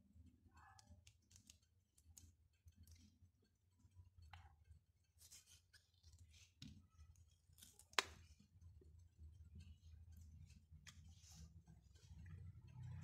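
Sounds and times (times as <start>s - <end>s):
soft clicks and squishes of fruit: 0.1s - 13.0s.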